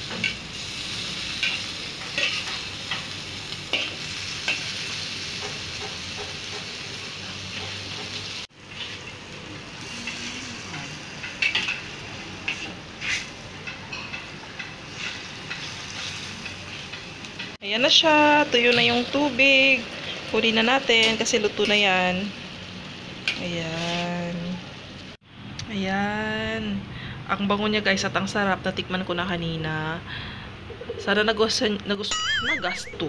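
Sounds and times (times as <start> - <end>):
food sizzling in a wok: 0.0 - 25.2
metal spatula scraping a wok: 0.1 - 2.7, 12.5 - 13.4.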